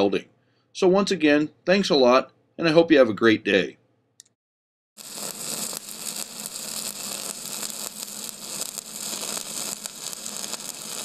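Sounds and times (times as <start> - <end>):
welding arc crackling: 5.0 - 11.0.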